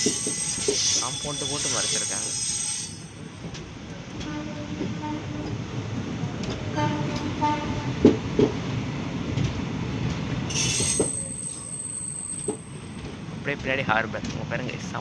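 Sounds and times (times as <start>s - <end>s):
train wheels rumbling on track: 0.0s - 15.0s
train horn blasts: 4.2s - 5.6s, 6.7s - 8.0s.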